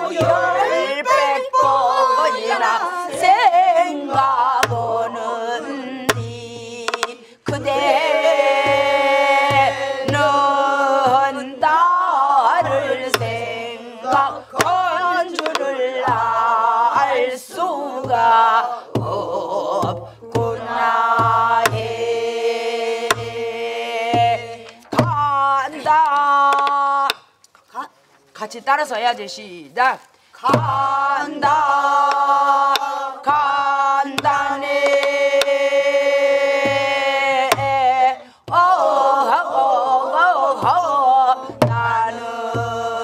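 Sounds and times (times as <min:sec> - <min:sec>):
woman singing folk song: 0:00.0 - 0:27.2, 0:29.8 - 0:43.0
group singing along: 0:00.0 - 0:27.3, 0:30.4 - 0:43.0
stick strokes on barrel drum: 0:14.1 - 0:16.2.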